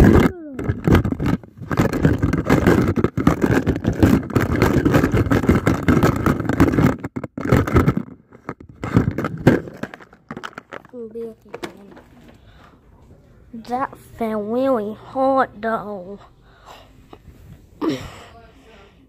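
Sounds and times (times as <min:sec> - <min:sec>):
fingers rubbing phone microphone: 0:00.0 - 0:09.5.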